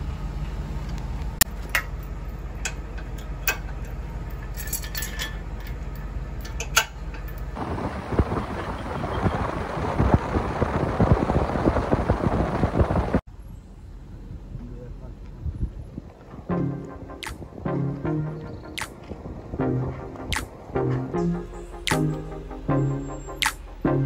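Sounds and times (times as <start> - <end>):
trailer coupler metallic clinks: 1.5 - 7.6
safety chains clinking: 3.1 - 7.5
steady low rumble: 5.6 - 24.0
wind and road rush: 6.4 - 17.7, 18.3 - 21.2
wind buffeting microphone: 7.5 - 13.2, 14.3 - 16.5, 18.4 - 20.8.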